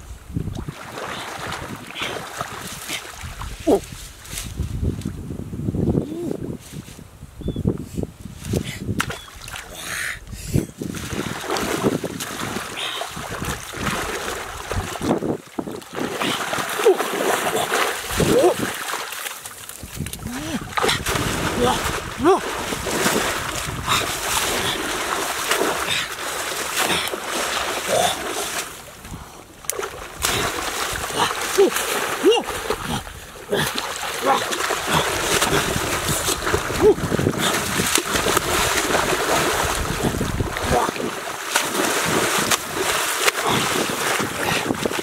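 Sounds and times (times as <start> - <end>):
water sloshing as person wades: 0.5 - 4.3, 10.8 - 45.0.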